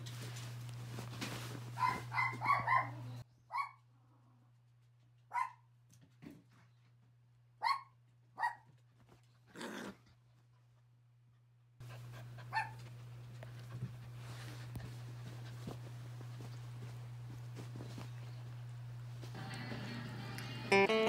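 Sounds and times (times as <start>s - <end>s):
small dogs barking: 1.8s - 3.8s, 5.3s - 5.7s, 7.6s - 8.7s, 12.5s - 12.8s
dog growling: 9.5s - 10.0s.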